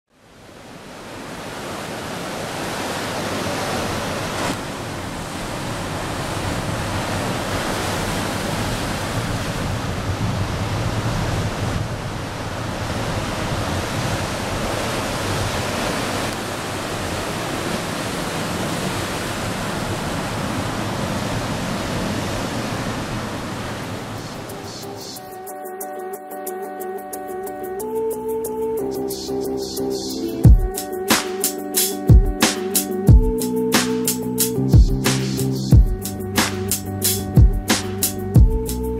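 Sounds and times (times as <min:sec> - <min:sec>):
wind: 0:00.1 - 0:26.3, 0:27.3 - 0:38.9
ocean surf roaring: 0:00.3 - 0:26.4.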